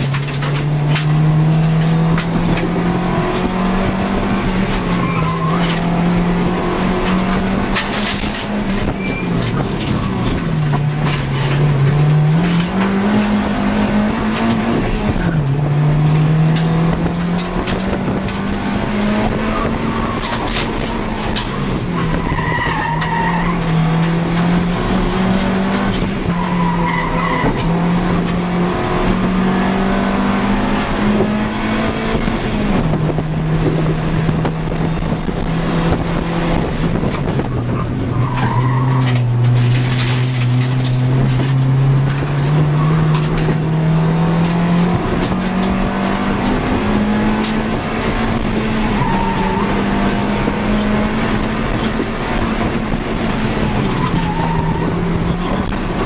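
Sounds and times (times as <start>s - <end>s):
car engine revving through gears: 0.0s - 56.0s
tyre squeals: 4.7s - 6.0s, 8.8s - 11.3s, 19.5s - 23.9s, 26.2s - 27.9s, 37.7s - 40.4s, 48.7s - 50.0s, 53.6s - 56.0s.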